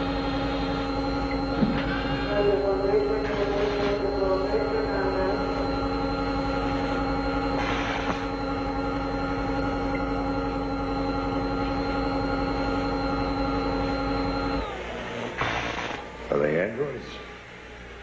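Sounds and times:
droning hum of held tones: 0.0s - 18.0s.

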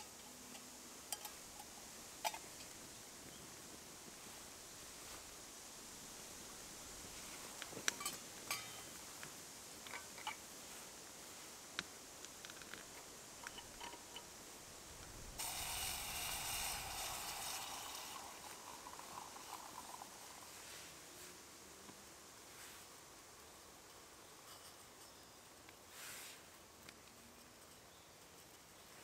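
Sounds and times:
flask cap unscrewing: 13.4s - 14.3s, 15.4s - 20.5s
liquid pouring into metal pot: 15.4s - 20.6s.

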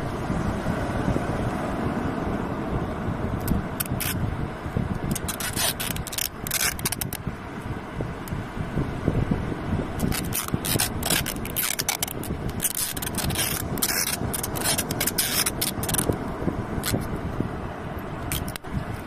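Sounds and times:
wind and surf rumble: 0.0s - 19.0s
adhesive tape peeling: 3.4s - 4.2s, 5.1s - 7.2s, 10.0s - 16.2s, 16.8s - 17.1s, 18.3s - 18.7s.

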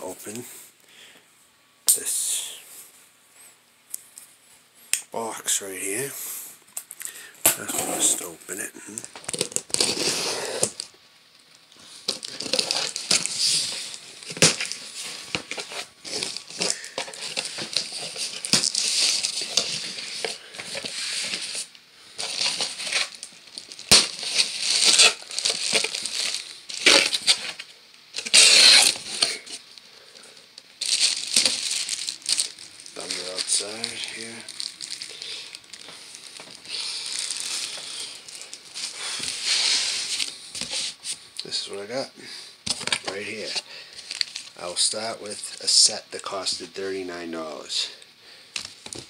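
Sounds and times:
cellophane crinkling: 6.9s - 42.0s, 42.6s - 47.0s
packing tape ripping: 8.9s - 10.9s, 12.1s - 29.6s, 30.8s - 41.0s.

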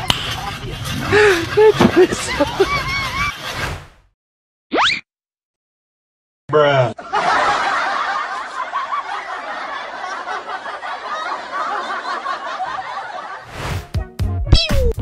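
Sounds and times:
crowd laughing: 0.0s - 3.5s, 7.0s - 13.7s.

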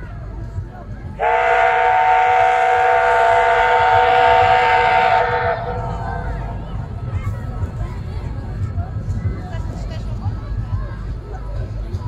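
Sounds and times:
steam locomotive whistle chord: 1.2s - 6.8s.

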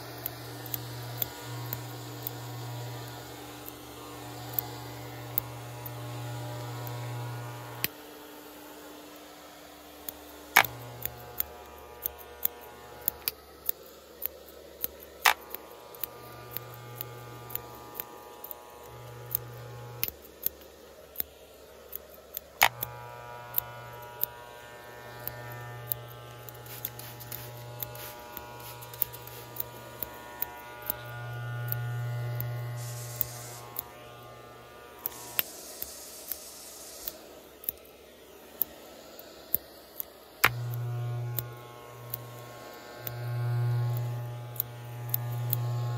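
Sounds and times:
electric hair clippers buzzing: 0.0s - 45.9s
sharp clicks: 10.0s - 37.9s, 39.5s - 45.9s.

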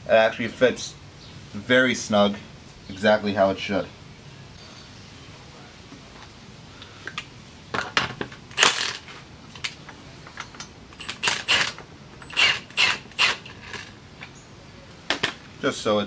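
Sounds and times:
cordless power tool driving a bolt: 8.5s - 9.1s, 10.9s - 14.0s.

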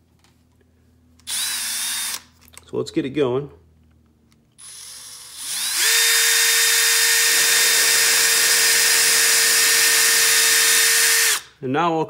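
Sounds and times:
power drill with hole saw: 1.3s - 2.3s, 4.6s - 11.5s.

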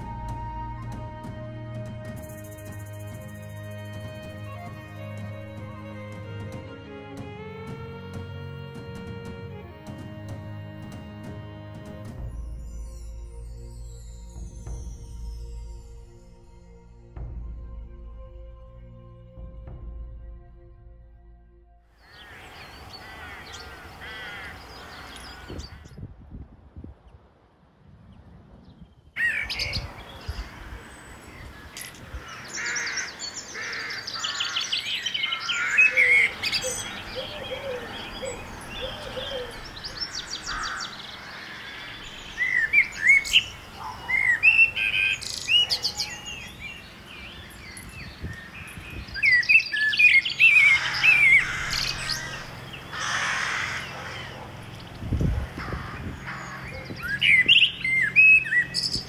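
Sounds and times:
songbirds singing: 22.0s - 26.0s, 28.6s - 59.0s.

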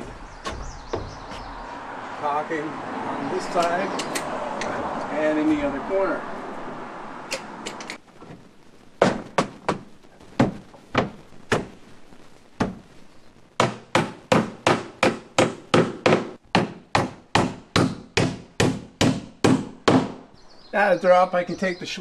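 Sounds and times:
hammer striking nails into wood: 13.6s - 20.2s.

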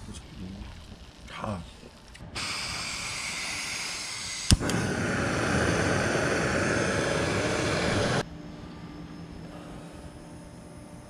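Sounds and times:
gas hissing from stove burner: 0.0s - 8.3s
lit burner roaring: 0.0s - 11.0s.

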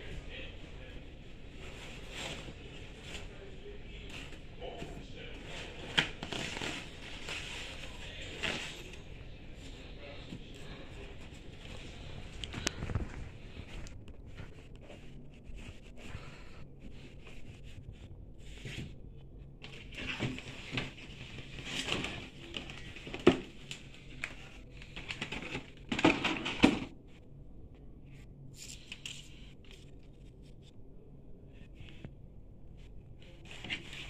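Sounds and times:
paper and cardboard rustling: 0.1s - 19.0s, 19.6s - 26.9s, 33.2s - 34.0s.

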